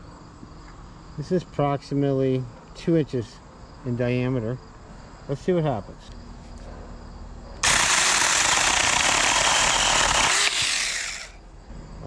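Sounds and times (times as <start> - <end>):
mini chainsaw cutting branch: 7.6 - 11.4.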